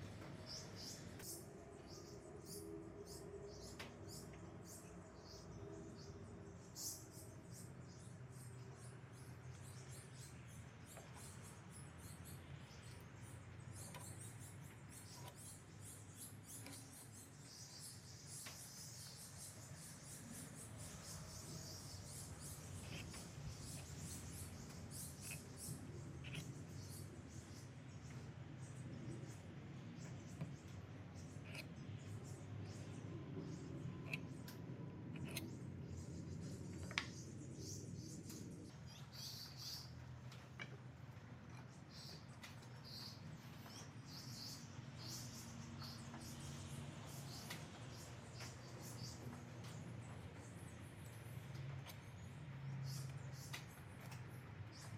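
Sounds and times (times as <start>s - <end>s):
pencil scratching on wood: 21.3s - 26.8s, 31.2s - 31.8s, 33.9s - 36.0s.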